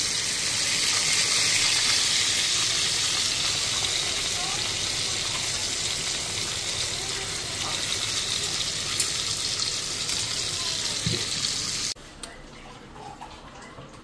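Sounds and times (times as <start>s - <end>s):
steaks sizzling in a frying pan: 0.0s - 12.0s.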